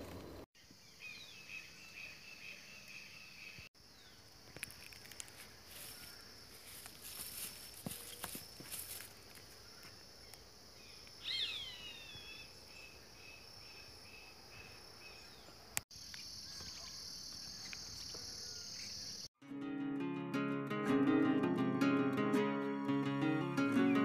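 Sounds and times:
insects trilling: 0.7s - 19.3s
bird calling: 9.7s - 15.5s
acoustic guitar music: 19.4s - 24.0s.

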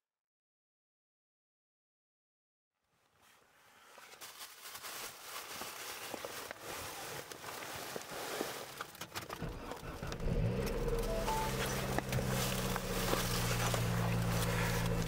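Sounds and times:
wind: 3.1s - 15.0s
sleet pattering on vehicle windshield: 4.0s - 15.0s.

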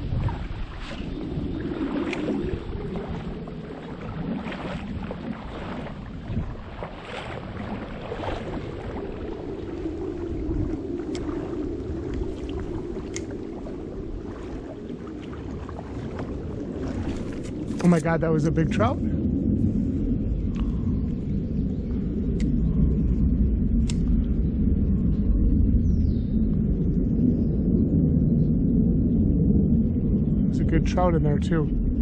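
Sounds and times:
creek water rushing: 0.0s - 18.9s
wind on the microphone: 0.0s - 32.0s
light clicks: 13.1s - 13.3s, 23.8s - 24.1s.

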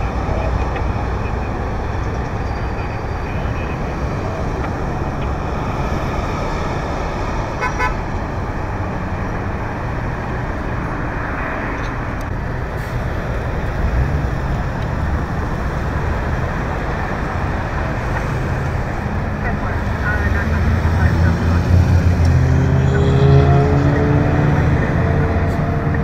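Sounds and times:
freeway traffic: 0.0s - 26.0s
high-pitched horn toot: 7.6s - 8.0s.

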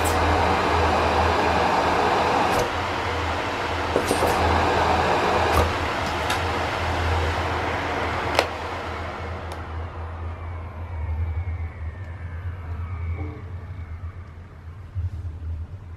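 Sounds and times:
vacuum cleaner running: 0.0s - 9.8s.

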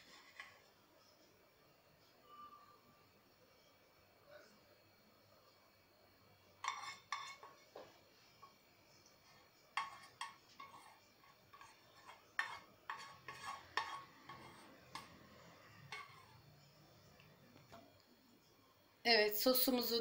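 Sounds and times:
spoon scraping a cooking pan: 0.0s - 0.7s, 6.6s - 16.8s.

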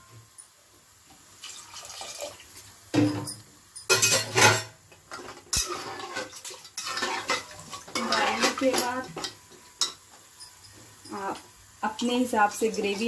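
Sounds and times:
metal spatula clattering on pot: 3.0s - 10.6s.

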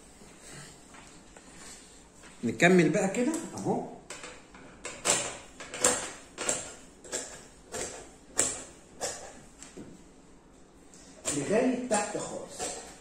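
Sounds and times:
shears snipping fabric: 11.2s - 13.0s.

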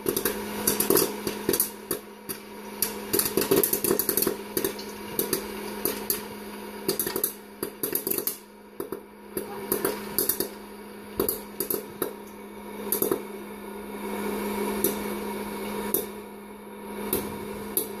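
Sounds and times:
popcorn landing in metal pot: 0.0s - 8.4s
popcorn kernels popping: 0.0s - 13.4s, 14.8s - 15.1s, 15.8s - 16.2s, 17.0s - 18.0s
popcorn popper fan hum: 0.0s - 18.0s.

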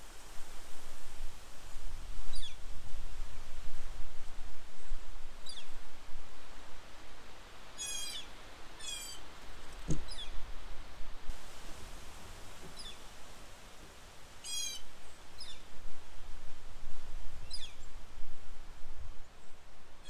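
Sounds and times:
wind rumble on microphone: 0.0s - 7.3s, 14.6s - 20.0s
small songbirds calling: 7.8s - 10.4s, 12.6s - 13.0s, 14.4s - 15.7s, 17.4s - 17.9s
thump: 9.8s - 10.1s.

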